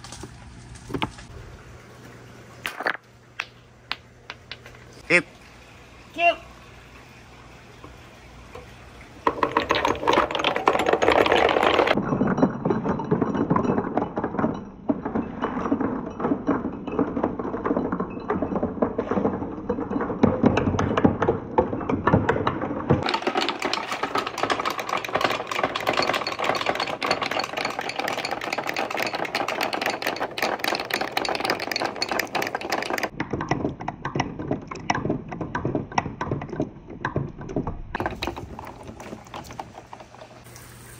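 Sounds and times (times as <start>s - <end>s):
marbles clattering down wooden run: 9.2s - 40.5s
water running: 38.4s - 40.9s.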